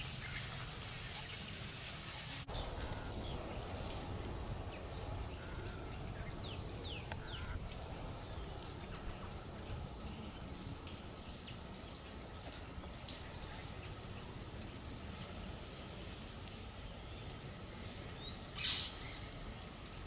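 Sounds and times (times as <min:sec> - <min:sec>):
small birds chirping: 0:12.8 - 0:19.4.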